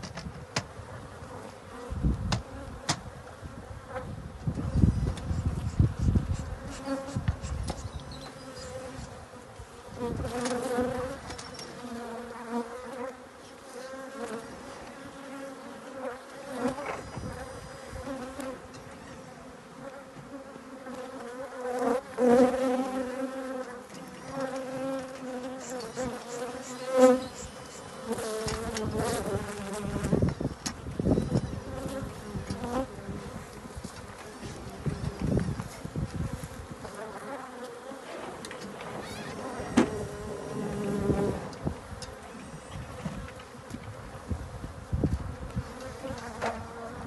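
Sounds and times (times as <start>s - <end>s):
knocks and rustles of hives: 0.0s - 19.0s, 19.7s - 47.0s
honeybees buzzing: 0.6s - 47.0s.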